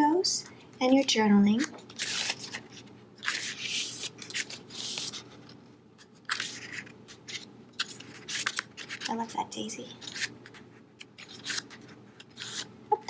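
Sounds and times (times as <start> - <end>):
notebook pages turning: 1.6 - 9.3, 10.0 - 12.7.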